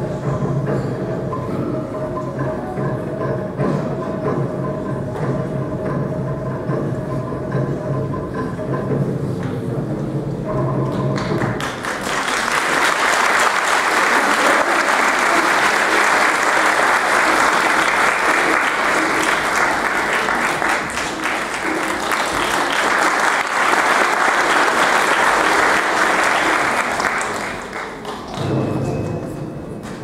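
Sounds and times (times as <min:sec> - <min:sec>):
audience applauding: 0:10.9 - 0:28.6.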